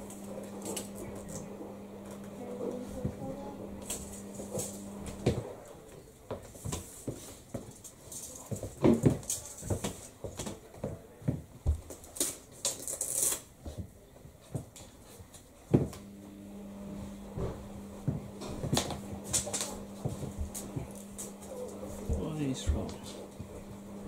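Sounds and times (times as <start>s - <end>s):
steady low hum: 0.0s - 5.9s, 15.9s - 24.0s.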